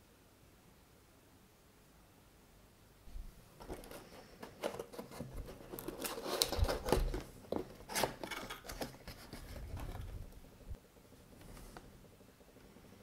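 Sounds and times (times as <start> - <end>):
cardboard box being opened: 3.6 - 10.1.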